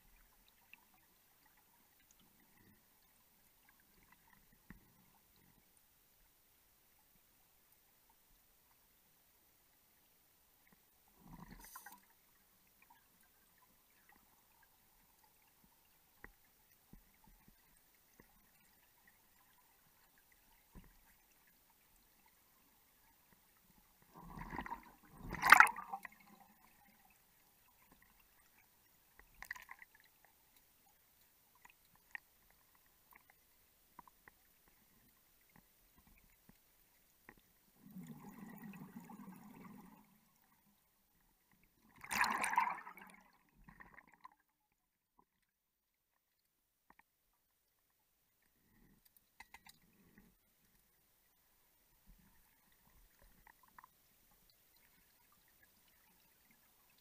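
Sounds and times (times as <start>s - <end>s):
underwater water noise bursts: 11.2s - 12.2s, 24.0s - 27.0s, 37.8s - 40.5s, 41.8s - 44.4s.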